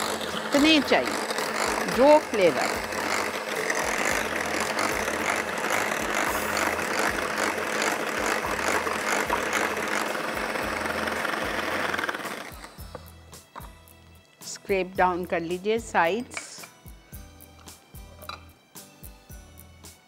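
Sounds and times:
electric hand mixer whisking: 0:00.0 - 0:13.1.

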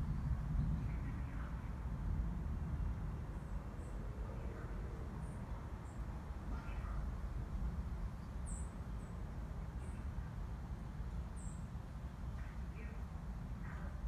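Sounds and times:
steady low rumble: 0:00.0 - 0:11.2.

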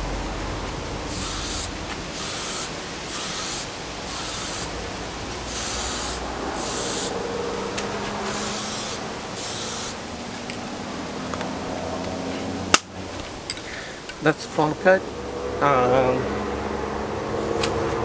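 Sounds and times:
spray paint can hissing: 0:01.1 - 0:04.8, 0:05.4 - 0:07.2, 0:08.2 - 0:10.0.

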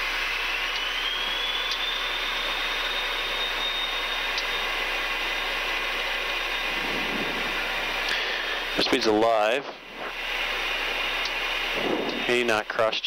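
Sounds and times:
jet engine whine: 0:00.0 - 0:13.0
loud rushing noise: 0:06.6 - 0:10.3, 0:11.7 - 0:12.7.

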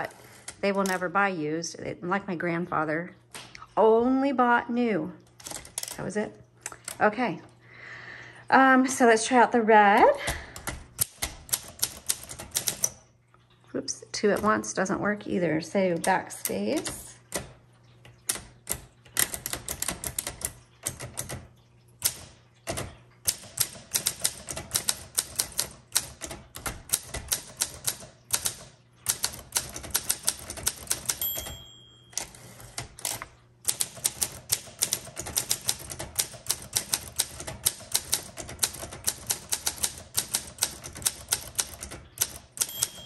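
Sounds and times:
typewriter keys clacking: 0:00.0 - 0:01.1, 0:05.4 - 0:07.0, 0:10.3 - 0:13.0, 0:18.1 - 0:43.0
typewriter carriage bell ding: 0:30.9 - 0:32.8, 0:42.2 - 0:43.0.

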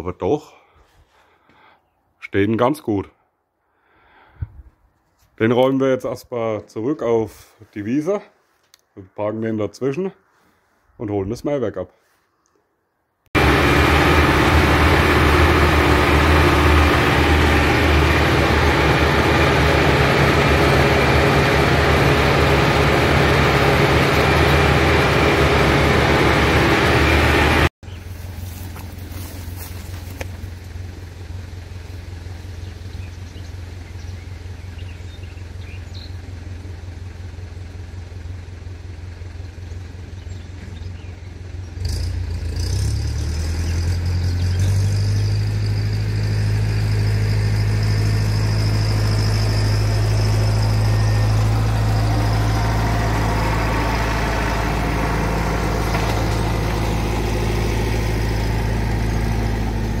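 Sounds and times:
tractor diesel engine: 0:13.3 - 1:00.0.

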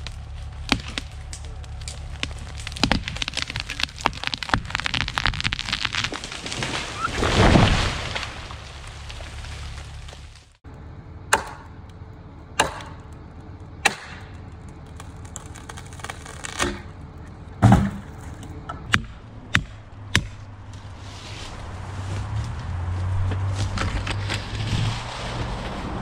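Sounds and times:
axe striking a wedge: 0:11.3 - 0:11.8, 0:12.6 - 0:13.0, 0:13.8 - 0:14.2.

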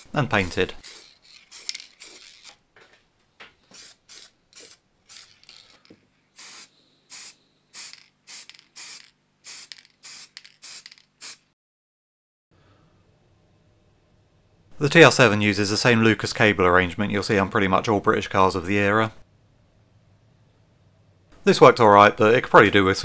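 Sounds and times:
spray can hissing: 0:00.8 - 0:02.6, 0:03.7 - 0:11.5.

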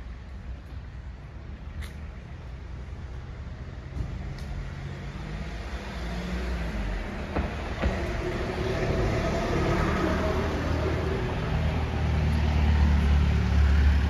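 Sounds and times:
car passing: 0:03.3 - 0:14.0.

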